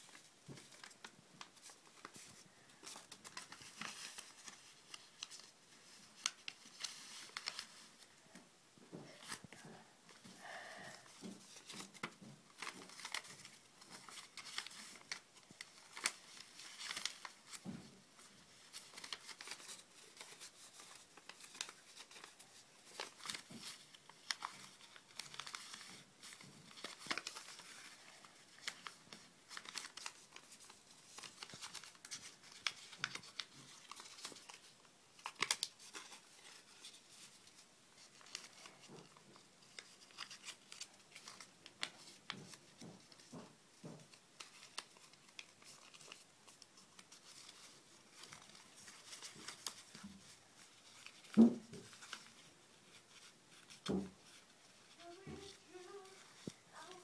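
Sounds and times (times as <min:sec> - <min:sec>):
paper folding and crinkling: 0:00.0 - 0:08.4, 0:09.0 - 0:57.0.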